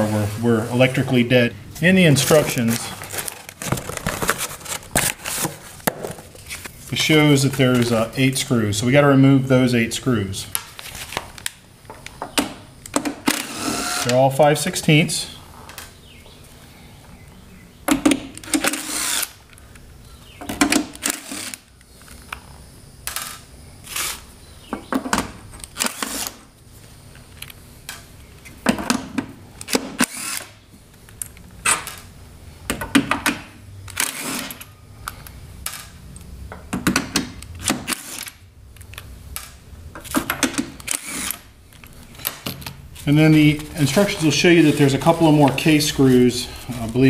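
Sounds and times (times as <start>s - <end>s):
cordless power driver running: 13.3s - 14.2s, 18.5s - 19.4s.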